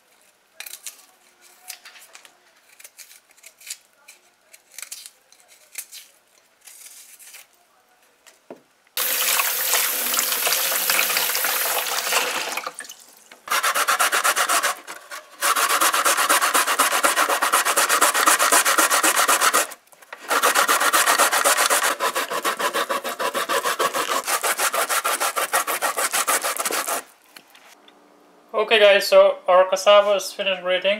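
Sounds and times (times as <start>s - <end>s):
knife paring skin: 2.7s - 6.1s, 13.5s - 27.1s
root grated on metal grater: 13.5s - 27.1s.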